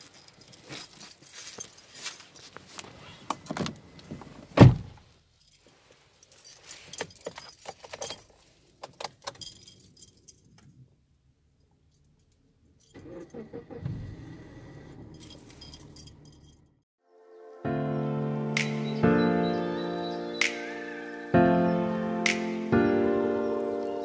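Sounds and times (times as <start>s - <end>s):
keys jingling and clicking: 0.0s - 3.6s, 5.4s - 10.8s, 15.1s - 16.8s
car door thud: 4.6s - 5.0s.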